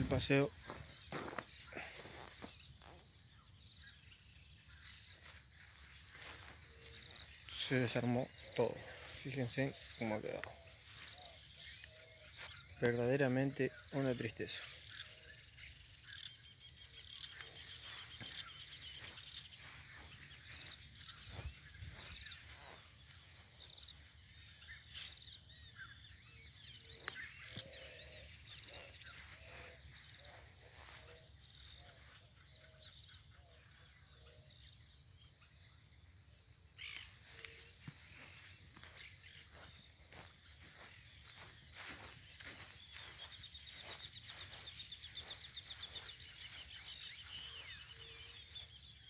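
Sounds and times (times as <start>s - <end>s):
footsteps on grass: 0.0s - 3.1s, 4.8s - 12.7s, 16.8s - 25.5s, 26.5s - 32.9s, 36.8s - 49.0s
birds chirping: 0.0s - 49.0s.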